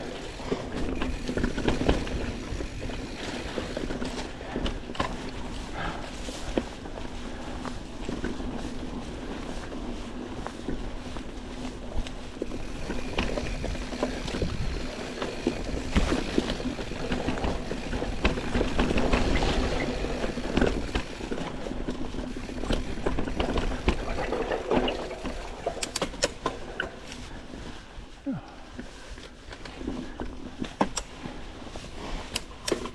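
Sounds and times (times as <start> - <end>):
bike knocks and rattles: 0.0 - 5.7, 10.4 - 27.2, 29.6 - 31.4
bike tyres rumbling over dirt: 0.0 - 32.9.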